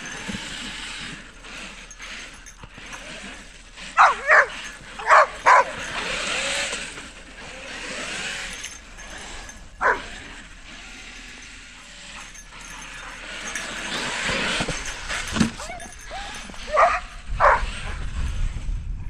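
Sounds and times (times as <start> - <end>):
rc truck spinning tyres in snow: 0.0 - 19.0
dog barking: 4.0 - 6.5, 9.8 - 10.2, 15.6 - 18.0.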